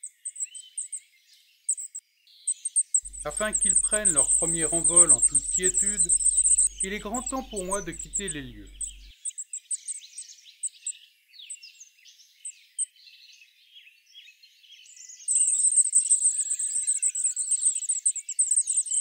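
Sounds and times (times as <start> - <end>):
nestlings begging: 3.0 - 9.1
thin high bird calls: 3.0 - 9.1.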